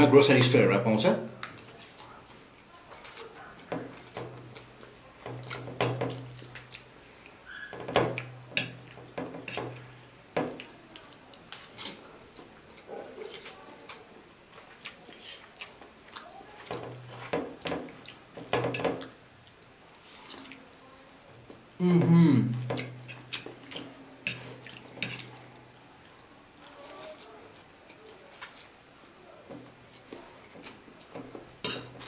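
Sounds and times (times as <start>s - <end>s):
person humming: 21.8s - 22.6s
forks scraping plate: 24.2s - 25.4s.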